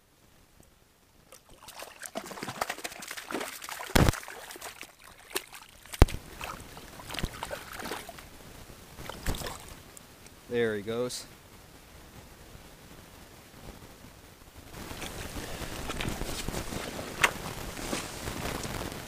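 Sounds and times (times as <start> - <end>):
water splashing and trickling: 1.2 - 9.9.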